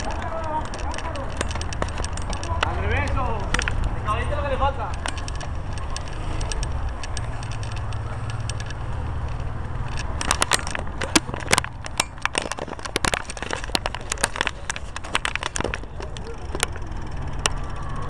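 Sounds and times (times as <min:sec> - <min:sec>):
wheels clicking on paving: 0:00.0 - 0:18.0
wind rumble on microphone: 0:00.0 - 0:18.0.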